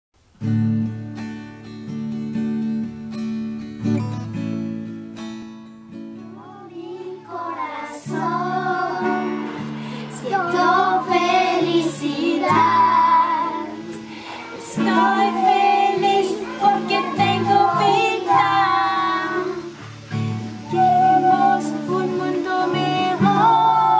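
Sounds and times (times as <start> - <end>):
acoustic guitar strumming chords: 0.3 - 23.9
woman and children singing: 6.3 - 23.9.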